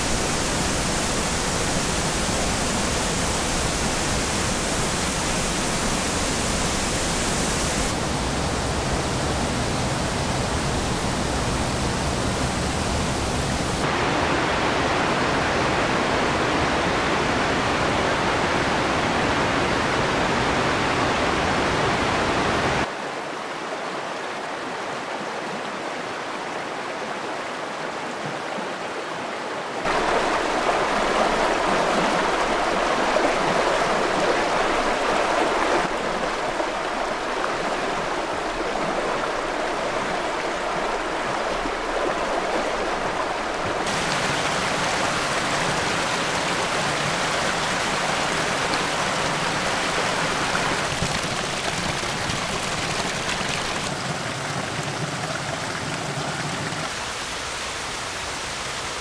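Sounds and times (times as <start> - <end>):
river rapids rushing over stones: 29.8 - 59.0.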